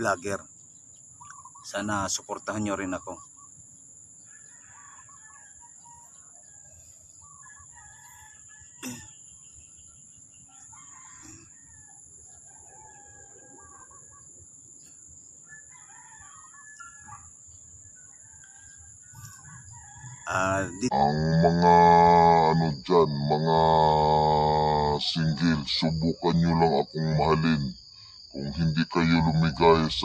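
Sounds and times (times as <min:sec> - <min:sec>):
rooster crowing: 0:04.3 - 0:09.1, 0:10.5 - 0:14.3, 0:15.4 - 0:17.4, 0:18.1 - 0:22.6.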